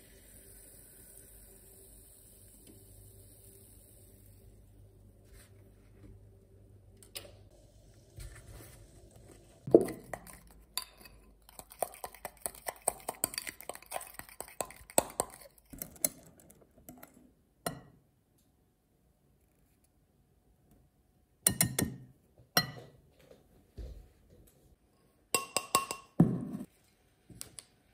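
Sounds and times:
spoon clinking against bowl: 9.7s - 16.1s, 25.4s - 26.2s.

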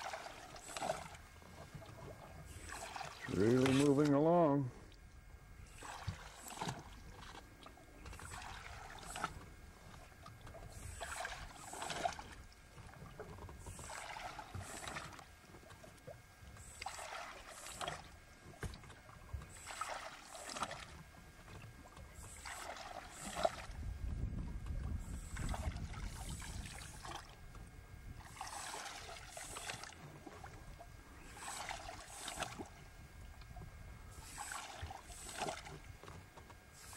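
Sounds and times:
paddle splashing in water: 0.0s - 5.0s, 5.6s - 36.9s.

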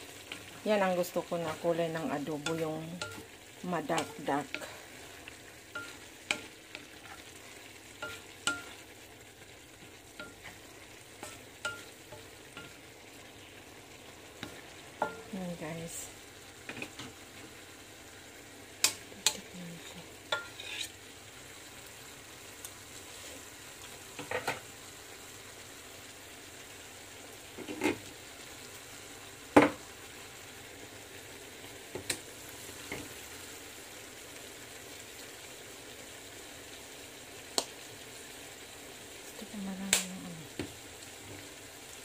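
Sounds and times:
utensil scraping frying pan: 0.0s - 13.0s, 18.8s - 21.0s, 27.6s - 28.1s
faint sizzle: 0.0s - 42.0s.

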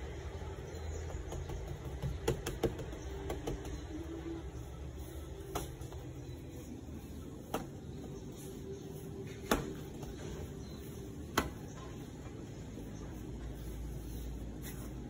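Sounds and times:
low steady background hum: 0.0s - 15.0s
dough slapped on wooden board: 1.2s - 3.9s, 9.4s - 10.1s, 11.3s - 11.8s.

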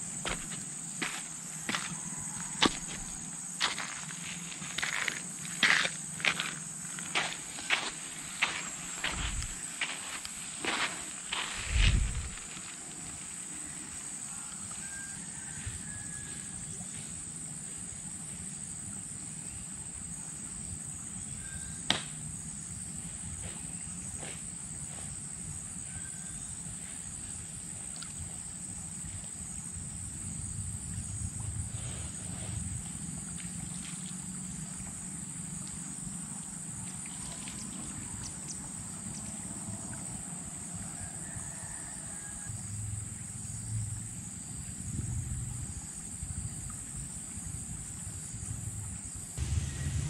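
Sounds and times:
high-pitched insect drone: 49.4s - 50.0s
low rush: 49.4s - 50.0s.

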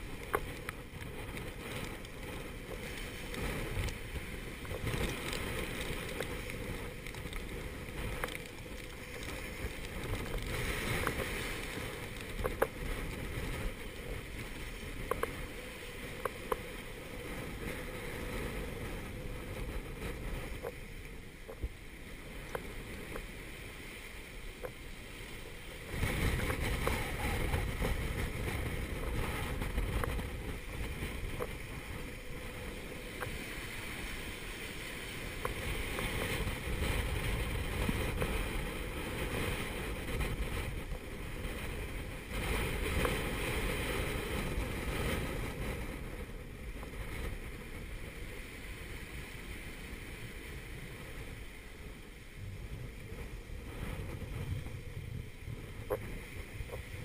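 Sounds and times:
gale wind: 0.0s - 57.0s
breaking seas rushing: 21.4s - 52.3s.

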